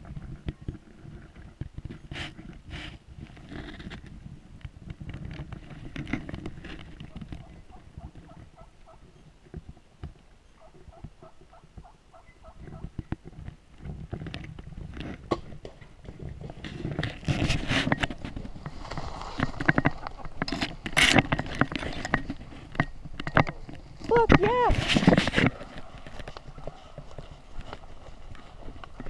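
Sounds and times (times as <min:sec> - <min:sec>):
rustling: 0:00.0 - 0:29.0
turkeys yelping: 0:07.1 - 0:09.2, 0:10.5 - 0:13.0.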